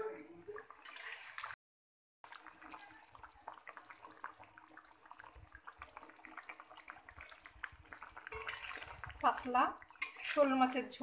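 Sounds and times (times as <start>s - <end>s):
curry bubbles popping: 2.2s - 11.0s.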